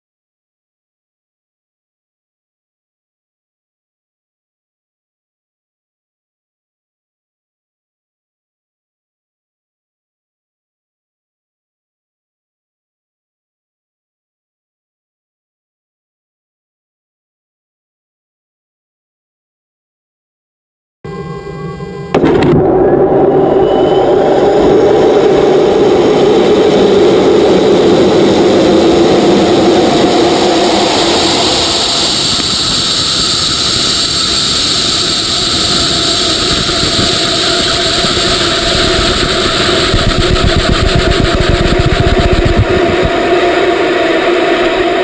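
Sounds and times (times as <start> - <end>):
rocket motor roaring: 22.0 - 45.0.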